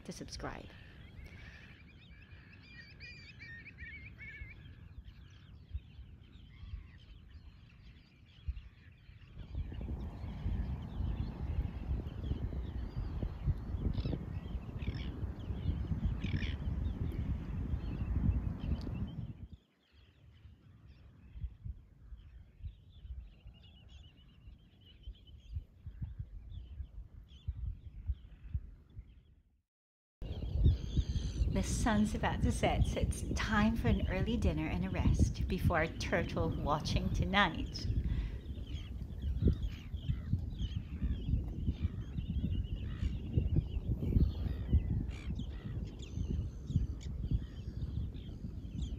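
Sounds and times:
seabirds calling: 0.0 - 17.8, 30.6 - 48.9
wind buffeting microphone: 0.0 - 29.3, 30.2 - 48.9
low steady rumble: 30.2 - 42.0.

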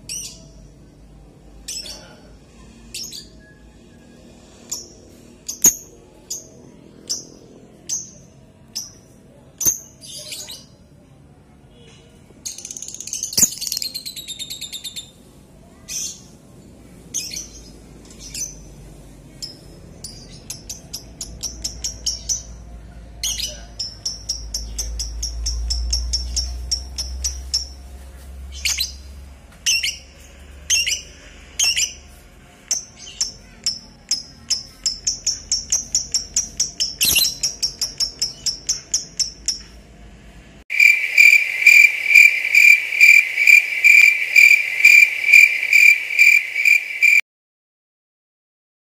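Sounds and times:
lovebird chirping: 4.5 - 9.0, 12.5 - 15.2, 23.2 - 27.9, 32.7 - 39.8, 40.7 - 47.2.

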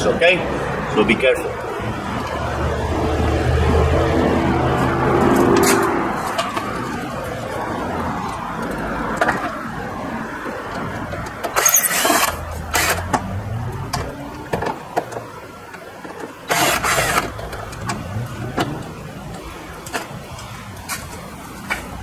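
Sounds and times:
cordless drill unscrewing screws: 11.2 - 13.3, 16.5 - 18.0.

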